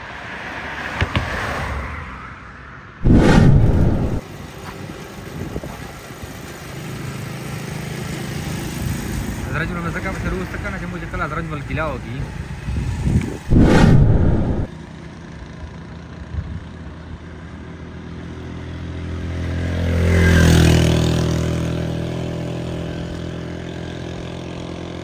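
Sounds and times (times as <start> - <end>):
loud whoosh: 3.0 - 4.2, 13.5 - 14.7
vehicle engine passing by: 3.0 - 4.2, 13.4 - 14.7.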